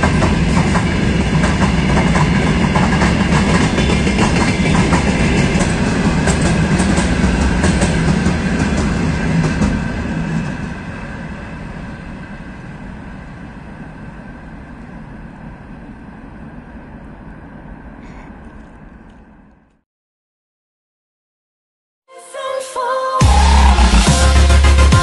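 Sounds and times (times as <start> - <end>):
freight train wagons rolling past: 0.0 - 19.8.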